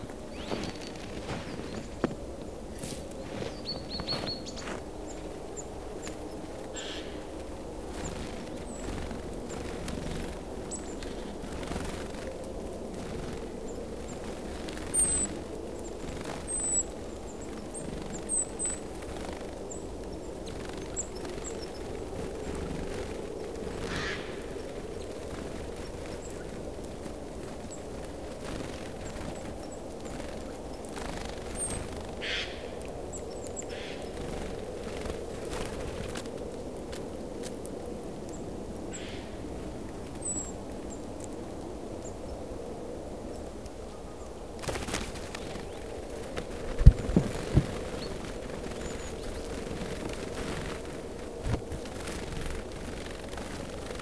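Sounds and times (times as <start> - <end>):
soft rustle: 0.0 - 6.7, 44.5 - 54.0
songbirds calling: 0.0 - 36.4, 38.2 - 41.3, 43.3 - 54.0
small birds chirping: 0.0 - 37.6, 38.2 - 41.3, 43.3 - 54.0
low outdoor background noise: 0.0 - 54.0
bird wings flurry: 0.3 - 2.2, 2.8 - 5.4, 7.9 - 19.7, 20.4 - 32.5, 33.8 - 37.6, 44.6 - 54.0.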